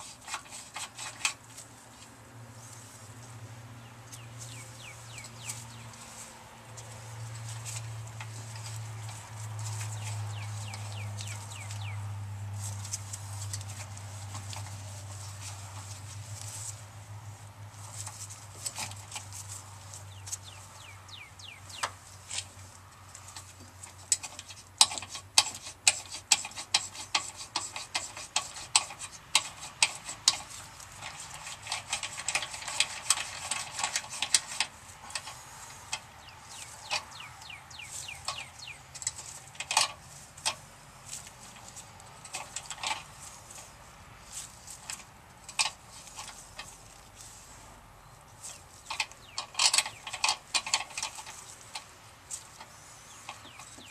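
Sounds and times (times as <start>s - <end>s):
tap wrench metallic clicks and creaks: 0.0s - 1.6s, 21.7s - 43.7s, 44.3s - 47.1s, 48.8s - 53.9s.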